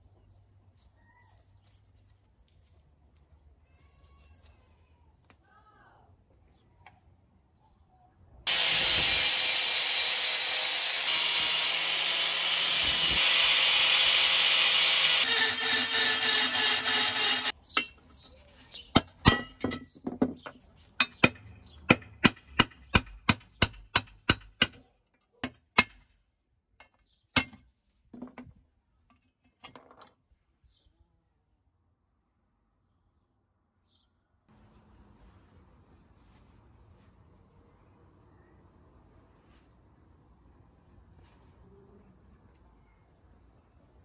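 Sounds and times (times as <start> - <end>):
angle grinder on metal: 8.5 - 17.6
hammer striking metal punch: 19.0 - 19.9.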